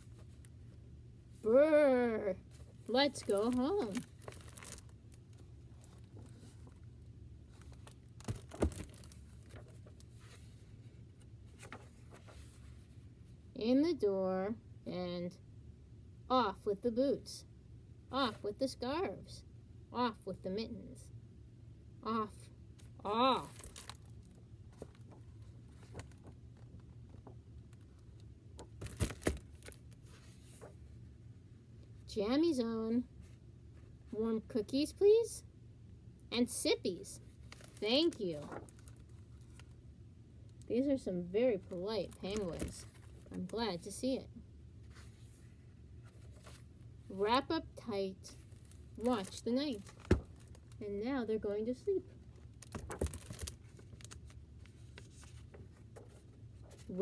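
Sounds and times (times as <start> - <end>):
low room hum: 0.0 - 57.0
book pages turning: 2.5 - 6.8, 7.5 - 12.9, 23.2 - 30.9, 37.4 - 39.8, 41.6 - 43.6, 44.8 - 46.7, 52.4 - 57.0
paper rustling: 2.5 - 6.8, 7.5 - 12.9, 23.2 - 30.9, 37.3 - 39.7, 44.9 - 46.7, 52.5 - 57.0.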